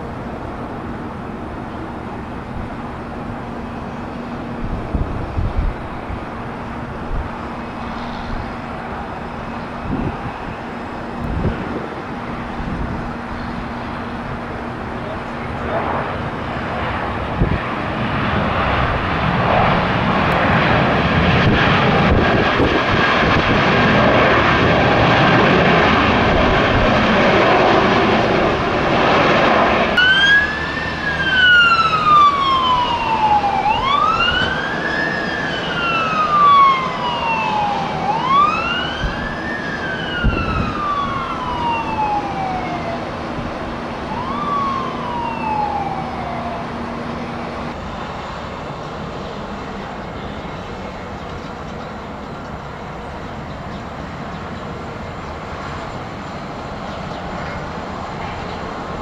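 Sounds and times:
jet engines roaring: 0.0 - 59.0
wailing siren: 2.3 - 47.8.

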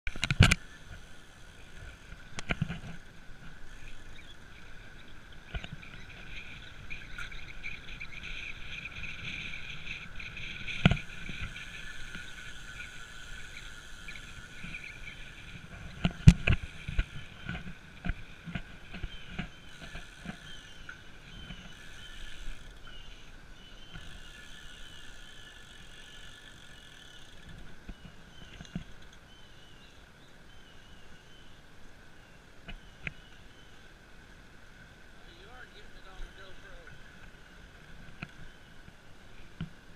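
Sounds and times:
high-pitched insect chorus: 3.5 - 28.2
bird chirps: 18.9 - 25.7.

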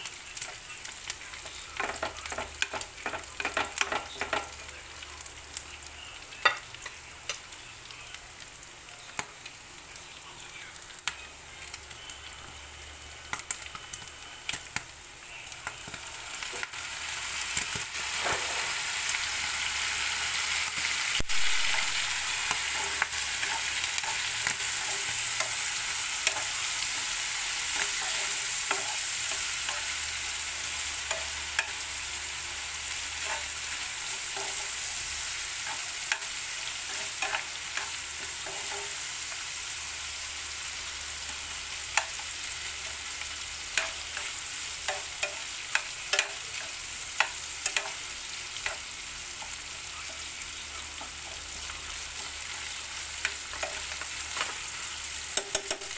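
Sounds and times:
meat and onions sizzling in a pan: 0.0 - 55.9
metal spoon scraping a pan: 33.0 - 39.0, 55.3 - 55.9.

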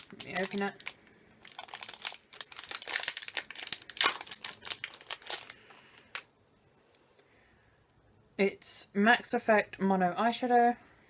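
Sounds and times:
plastic packaging crackling: 0.0 - 6.3.

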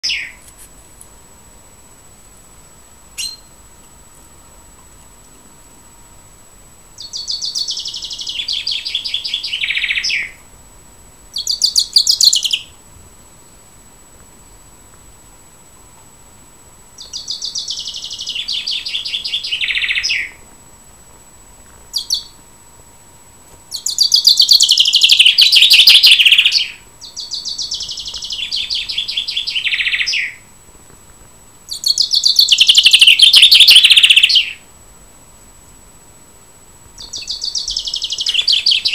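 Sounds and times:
chaffinch song trill: 23.8 - 30.5, 31.7 - 34.7
chaffinch short call: 32.3 - 34.6.

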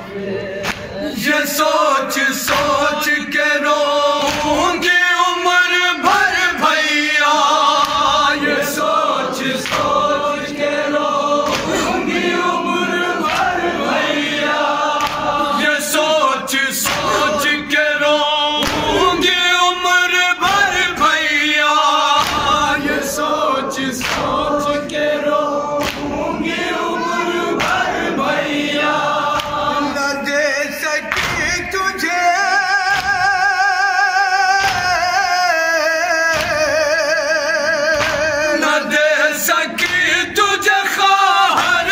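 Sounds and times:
men chanting over a pa: 0.0 - 41.9
chest-beat slaps: 0.6 - 1.0, 4.2 - 4.8, 9.6 - 10.0, 11.4 - 12.3, 15.0 - 15.5, 16.8 - 17.4, 18.6 - 19.3, 22.2 - 22.8, 24.0 - 25.1, 25.8 - 28.0, 29.3 - 29.8, 31.1 - 31.7, 32.9 - 33.3, 34.6 - 35.0, 36.3 - 36.7, 37.9 - 38.4.

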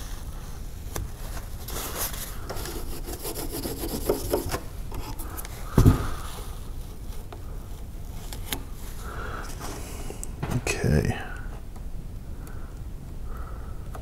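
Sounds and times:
paper towel wiping a surface: 0.0 - 4.6
thump: 5.7 - 6.2.

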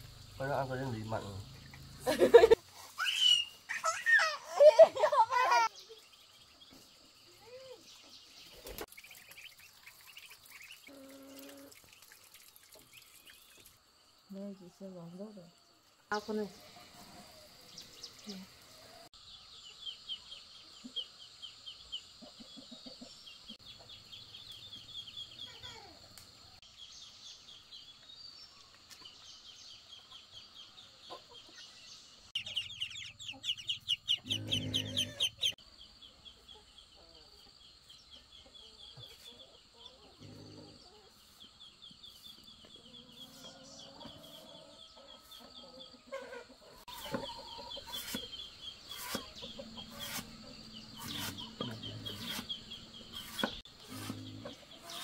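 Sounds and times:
faint rhythmic chirping: 29.4 - 55.0
ducklings peeping: 32.4 - 35.6.

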